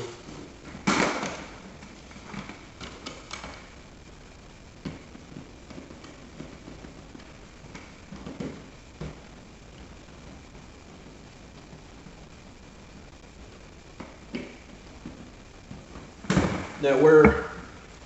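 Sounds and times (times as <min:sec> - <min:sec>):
cables knocking and rustling: 0:00.0 - 0:03.8, 0:04.8 - 0:11.8.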